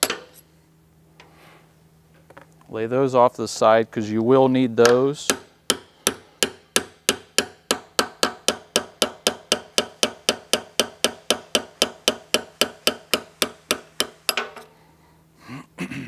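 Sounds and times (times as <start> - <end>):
hammer striking steel punch: 4.8 - 14.5.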